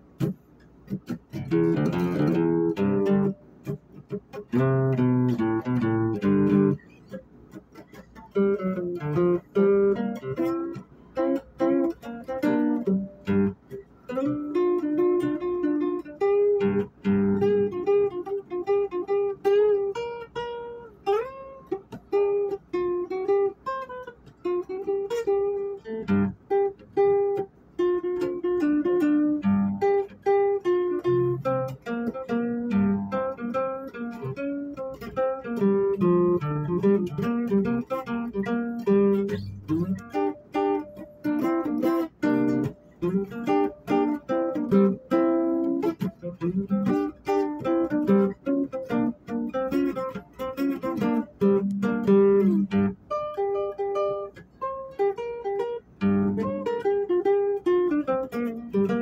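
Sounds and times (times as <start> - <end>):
guitar plucking notes and chords: 0.0 - 59.0.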